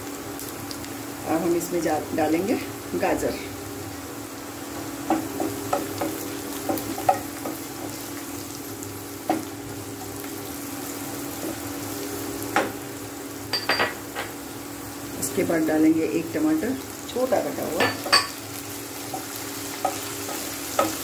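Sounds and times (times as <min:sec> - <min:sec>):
vegetables sizzling in oil: 0:00.0 - 0:21.0
spatula knocking on pan: 0:05.0 - 0:08.0, 0:09.2 - 0:09.5, 0:19.1 - 0:21.0.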